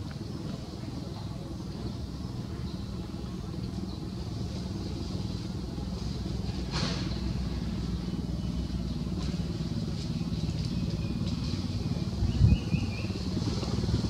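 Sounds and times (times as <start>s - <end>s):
engine humming: 0.0s - 14.0s.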